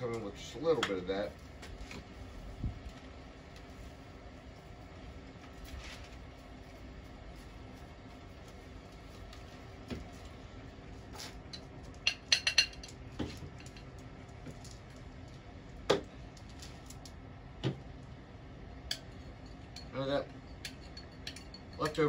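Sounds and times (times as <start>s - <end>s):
glass and jars clinking on table: 12.0s - 13.9s, 19.2s - 22.0s.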